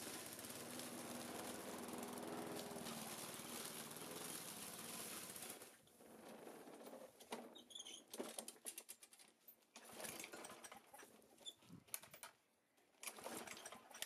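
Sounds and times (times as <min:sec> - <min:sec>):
petrol lawn mower running: 0:00.0 - 0:05.9.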